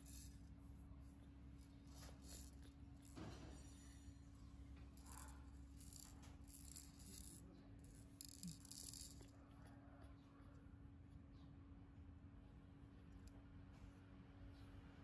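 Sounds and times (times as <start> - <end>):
baby rattle shaken: 5.8 - 9.3.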